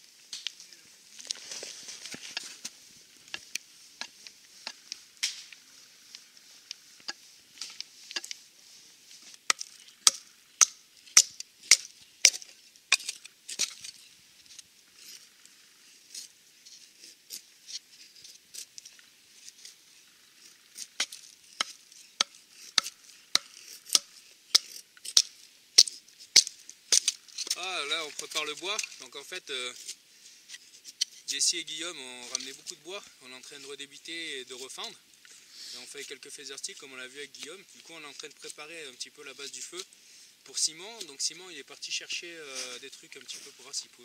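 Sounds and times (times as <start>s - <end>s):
blade chopping dry wood: 9.4s - 14.0s, 20.9s - 27.6s.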